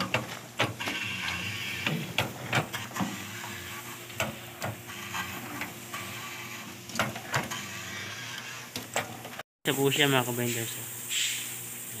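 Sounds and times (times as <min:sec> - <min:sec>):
water hissing from hose: 0:09.8 - 0:12.0.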